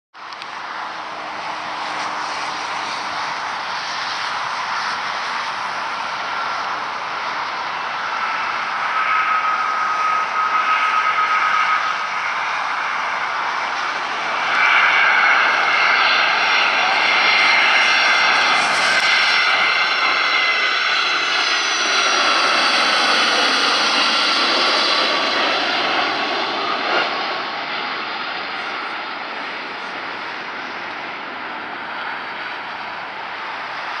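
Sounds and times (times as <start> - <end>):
jet engines roaring: 0.2 - 34.0.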